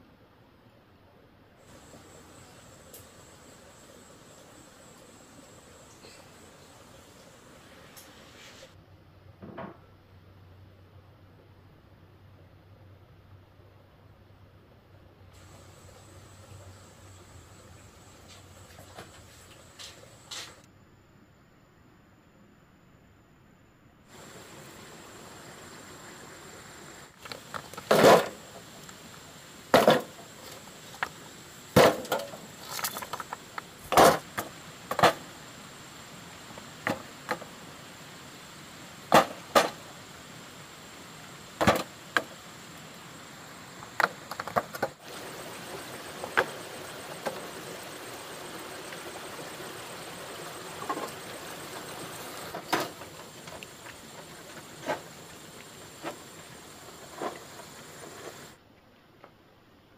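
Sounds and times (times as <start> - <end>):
steady hiss: 0.0 - 59.9
stones and tools knocking: 31.8 - 35.2.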